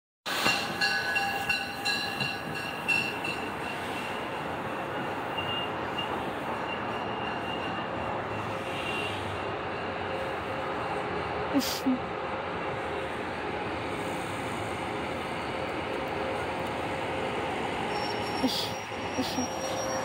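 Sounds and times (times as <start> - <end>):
train rumble: 0.3 - 20.0
high squealing tones: 17.9 - 20.0.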